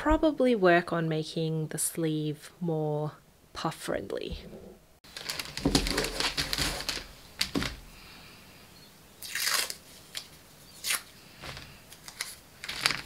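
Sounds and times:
paper rustling: 5.0s - 7.9s, 10.9s - 13.0s
sticky tape pulled and torn: 9.2s - 11.1s.

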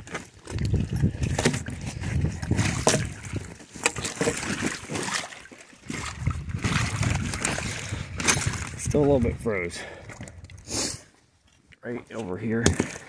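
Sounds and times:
ice chunks shifting: 0.0s - 9.1s
slush water sloshing: 0.0s - 10.6s, 12.4s - 13.0s.

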